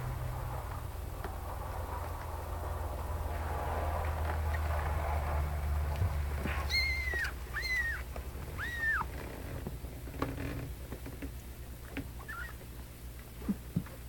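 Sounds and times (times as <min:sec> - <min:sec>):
low steady rumble: 0:00.0 - 0:14.0
kitten mewing: 0:06.4 - 0:09.1.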